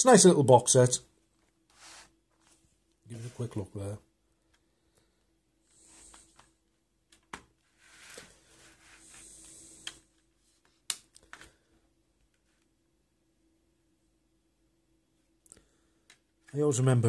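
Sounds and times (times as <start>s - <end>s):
soft rustle of packaging: 1.2s - 12.8s.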